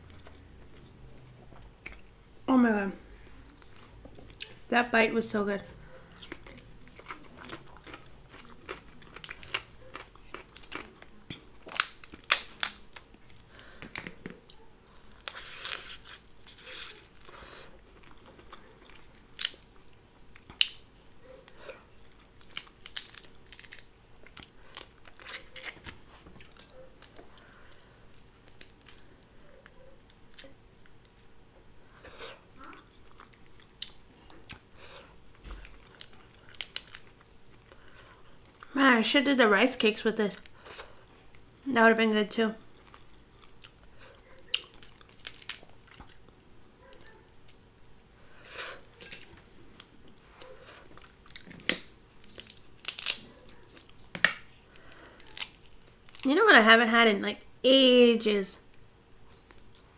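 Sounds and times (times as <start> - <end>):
chewing: 5.7 - 11.8, 14.4 - 31.3, 31.9 - 38.7, 42.6 - 51.6
crab shells cracking: 6.3 - 13.2, 18.5 - 19.8, 20.4 - 26.0, 35.5 - 37.2, 44.5 - 46.3, 51.3 - 56.3.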